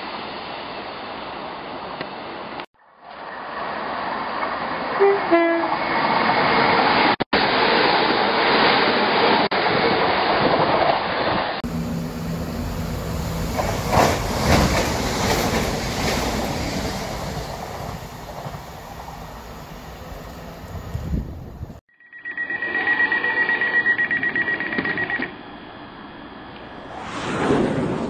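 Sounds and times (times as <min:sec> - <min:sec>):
train running: 0:03.4 - 0:21.8
two-note train horn: 0:05.0 - 0:05.8
train wheels clacking over rail joints: 0:13.5 - 0:19.1.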